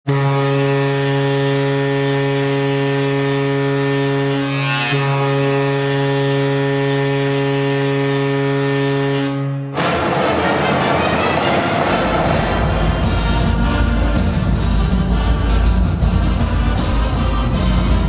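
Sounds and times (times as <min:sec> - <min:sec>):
goal horn buzzing: 0:00.0 - 0:18.0.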